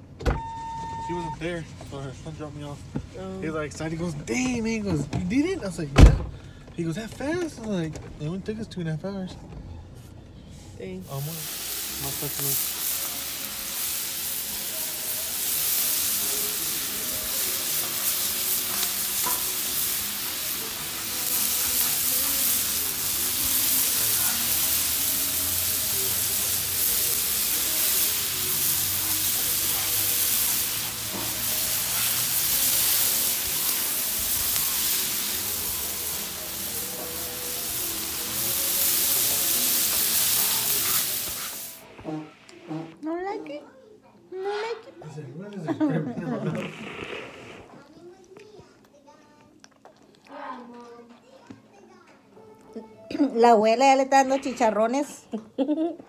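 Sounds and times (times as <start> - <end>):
meat sizzling on a griddle: 11.0 - 41.9
spatula turning food: 11.1 - 42.8.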